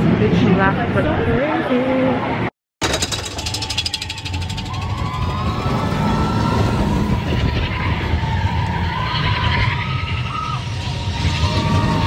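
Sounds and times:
roller coaster rumbling on track: 0.0s - 12.0s
rapid clatter: 2.8s - 5.9s
steady high squeal: 3.2s - 12.0s
wind buffeting microphone: 4.8s - 9.8s.

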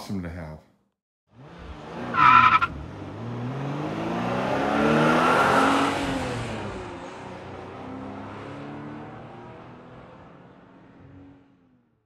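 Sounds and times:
car engine accelerating: 1.3s - 11.6s
car tires squealing: 2.1s - 2.8s.

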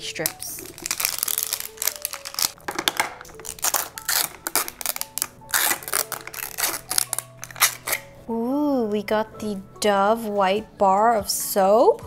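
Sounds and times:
plastic wrap crinkling and tearing: 0.0s - 8.1s.

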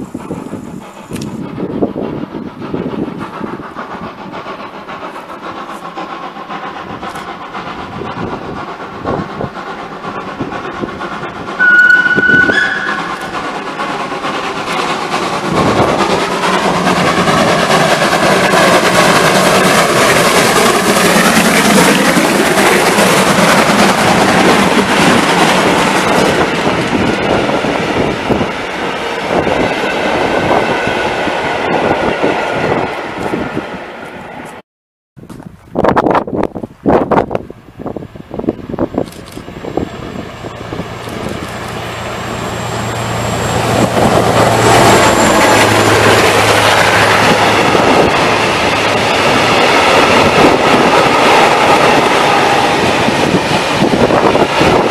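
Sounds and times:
steam locomotive passing: 0.0s - 34.6s, 35.3s - 54.9s
loud train whistle blast: 11.6s - 13.4s.

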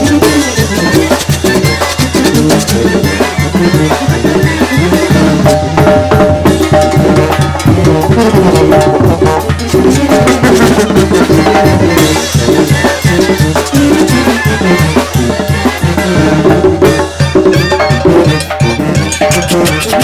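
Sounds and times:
drum kit beat: 0.0s - 20.0s.

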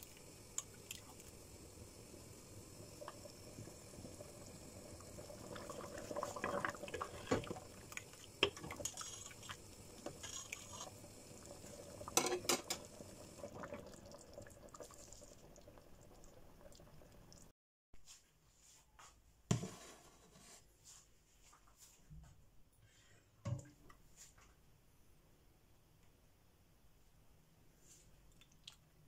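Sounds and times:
soup boiling and bubbling: 0.0s - 17.5s.

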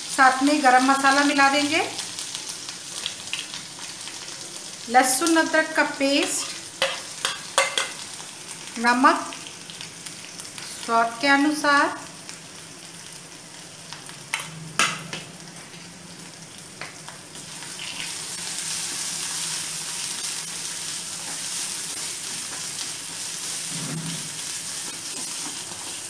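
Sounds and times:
paste sizzling in oil: 17.4s - 26.0s.

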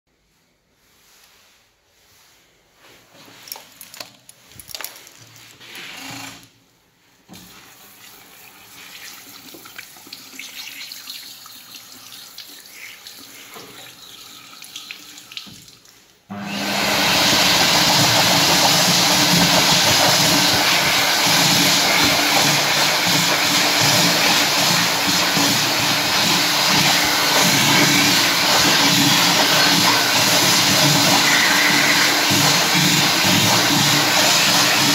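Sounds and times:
hand dryer blowing: 16.3s - 34.9s.

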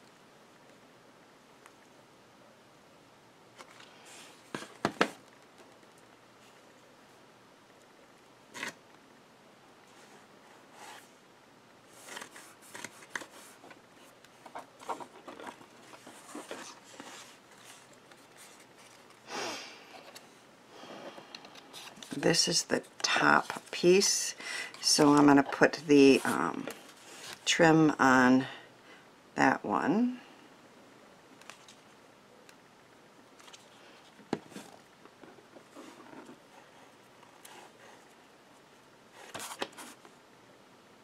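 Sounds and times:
paper rustling and tapping: 4.5s - 5.8s.

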